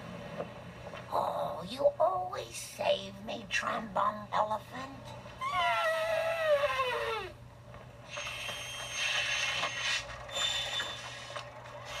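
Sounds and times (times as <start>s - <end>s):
thin high whines: 8.1s - 11.4s.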